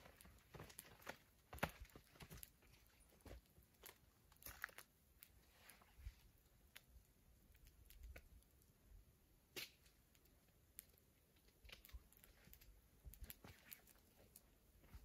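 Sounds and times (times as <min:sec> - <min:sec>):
wood fire crackling: 0:09.6 - 0:14.6.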